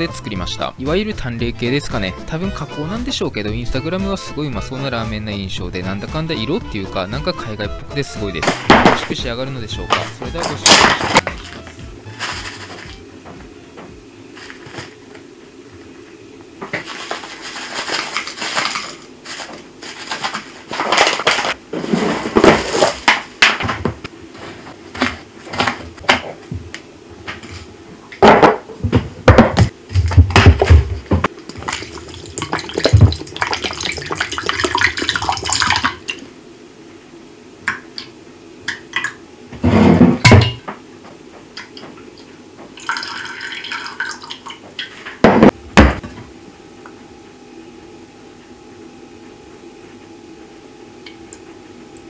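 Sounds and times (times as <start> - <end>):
liquid poured into saucepan: 42.8 - 44.4.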